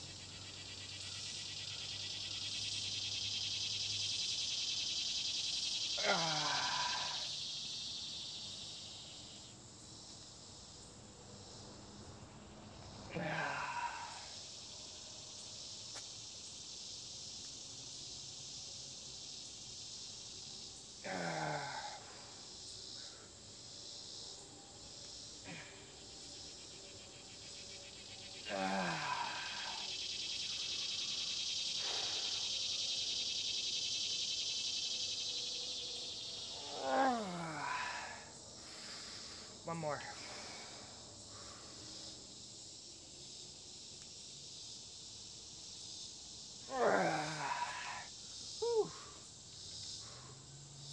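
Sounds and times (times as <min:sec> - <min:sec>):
background hiss: 0:00.0 - 0:50.9
crickets chirping: 0:00.0 - 0:50.9
man grunting: 0:06.0 - 0:07.3, 0:13.1 - 0:14.3, 0:21.1 - 0:22.0, 0:28.5 - 0:29.8, 0:36.7 - 0:38.2, 0:46.7 - 0:49.0.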